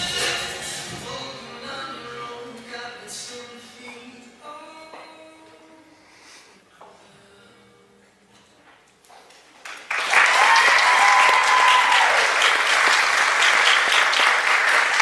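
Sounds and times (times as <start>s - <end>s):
group applause: 9.6s - 15.0s
person cheering: 10.3s - 12.4s.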